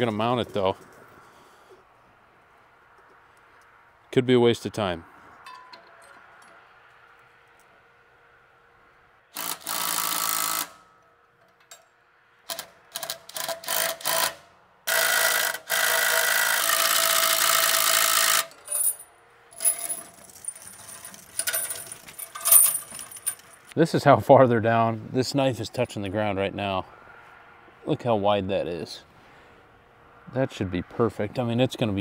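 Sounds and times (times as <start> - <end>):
cordless impact driver bursts: 9.4 - 10.8.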